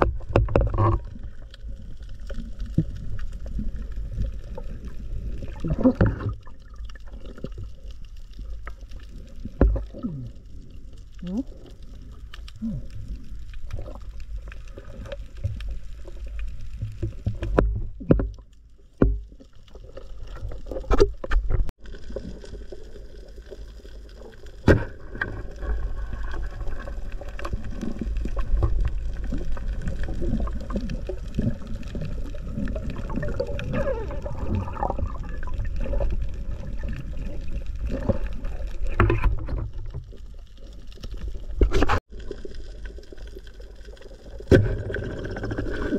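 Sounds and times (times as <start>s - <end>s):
sharp clicks and knocks: 0.0s - 1.1s
underwater gurgling water: 0.0s - 45.9s.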